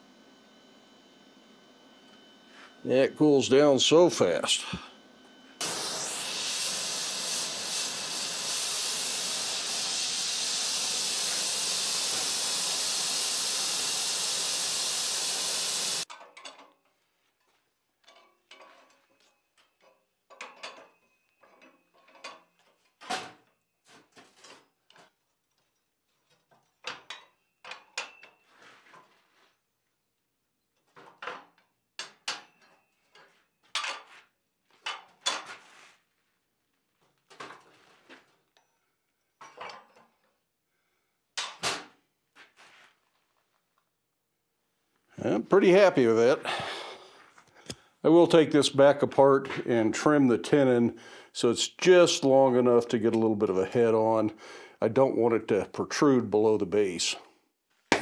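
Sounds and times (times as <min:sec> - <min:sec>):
gas torch flame hissing: 0:05.6 - 0:16.1.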